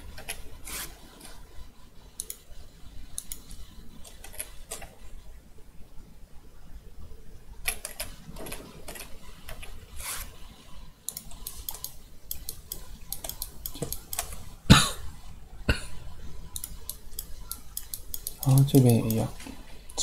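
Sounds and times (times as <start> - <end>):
mouse and keyboard clicking: 2.2 - 2.4, 3.1 - 5.0, 11.1 - 14.5, 16.5 - 19.4.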